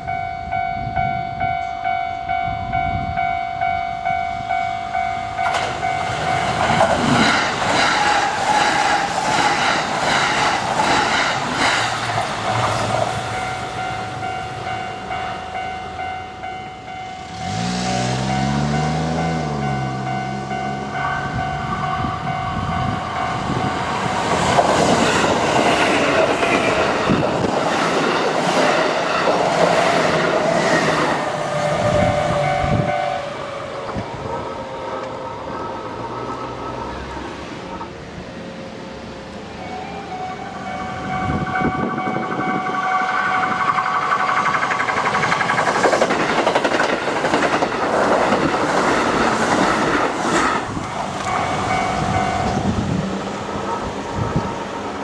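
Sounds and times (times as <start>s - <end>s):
level crossing warning bell: 0.0s - 7.0s, 13.0s - 24.6s, 31.2s - 36.4s, 37.8s - 45.5s, 51.1s - 55.0s
train wheels clattering over rails: 5.4s - 14.4s, 21.7s - 33.0s, 41.7s - 55.0s.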